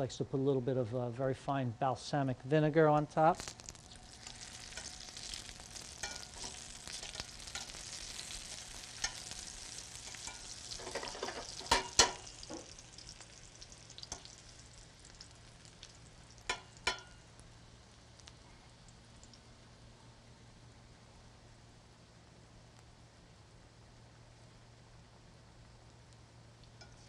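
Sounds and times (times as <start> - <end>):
eggplant sizzling in oil: 3.2 - 20.8, 25.9 - 27.0.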